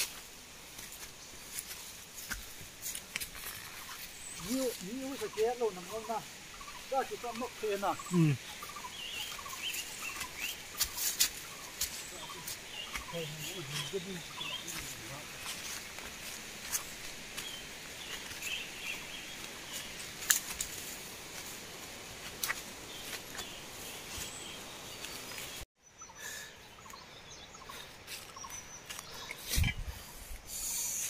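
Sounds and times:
steady hiss: 0.0s - 25.6s, 30.0s - 31.0s
bird chirps: 3.6s - 15.6s.

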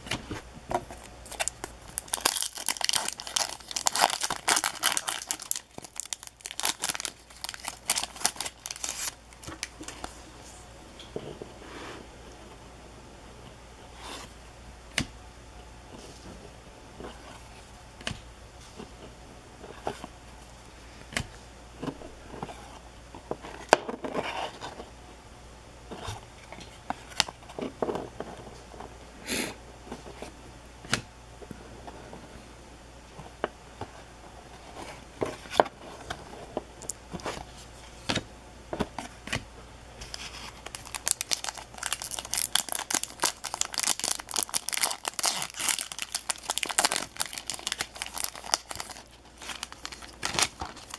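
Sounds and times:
plastic wrapper crinkling: 1.0s - 10.1s, 40.1s - 50.9s.

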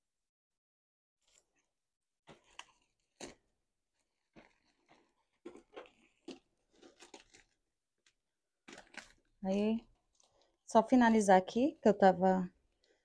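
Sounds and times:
fabric rustling: 1.2s - 7.6s.

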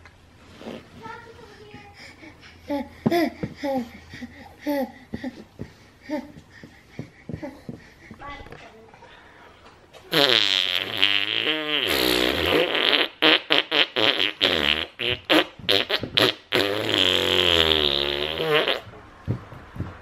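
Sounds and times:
man blowing raspberries: 0.5s - 0.9s, 10.1s - 18.9s.

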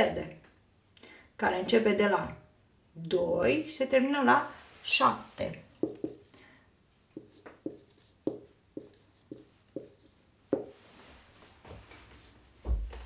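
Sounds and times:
marker writing on whiteboard: 5.8s - 6.2s, 7.1s - 10.8s.

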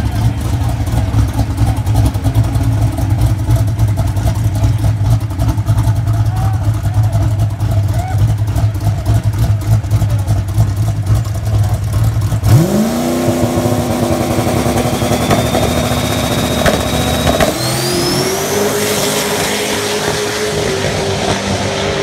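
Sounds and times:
truck engine revving: 0.0s - 22.0s
high whistle climbing in pitch: 14.2s - 20.7s.

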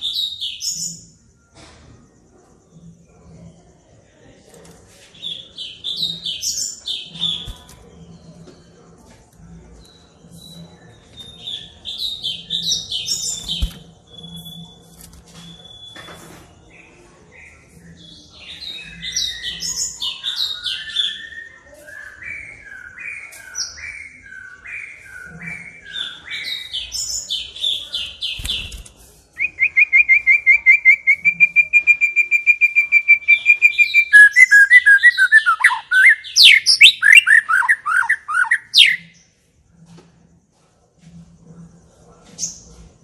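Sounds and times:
bird singing whistled phrases: 29.4s - 39.0s
bird rapid trill: 29.9s - 39.1s.

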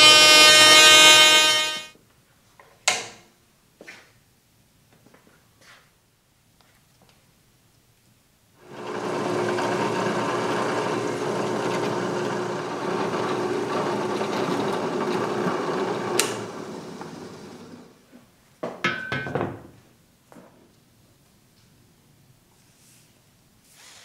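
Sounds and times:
drill press humming: 0.0s - 1.9s, 8.6s - 17.9s.

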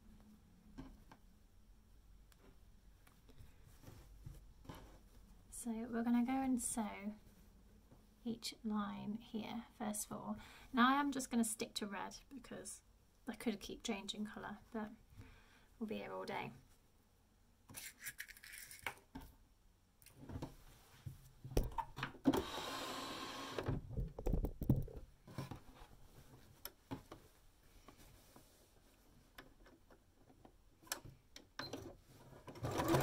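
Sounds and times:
fabric rustling and sliding: 3.3s - 5.4s.

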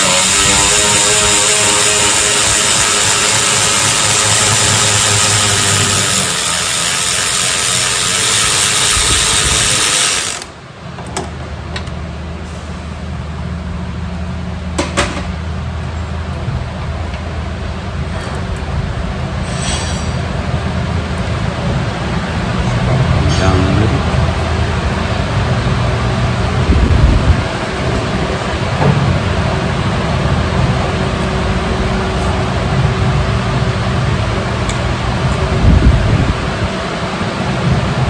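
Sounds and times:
ratchet clicking: 0.0s - 10.5s.

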